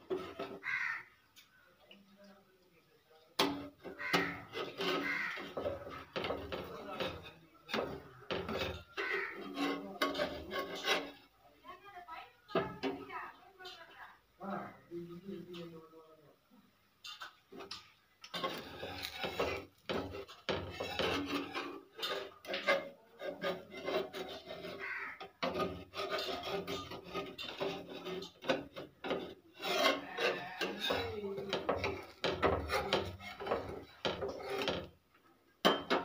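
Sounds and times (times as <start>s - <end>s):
metal spatula scraping pan: 0.0s - 1.0s, 3.4s - 11.4s, 17.1s - 35.0s.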